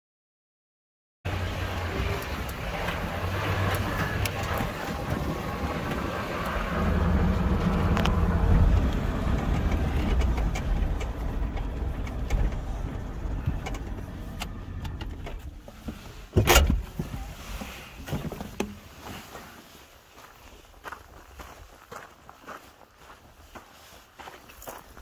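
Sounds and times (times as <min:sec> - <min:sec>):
vehicle rumbling on dirt track: 0:01.3 - 0:19.6.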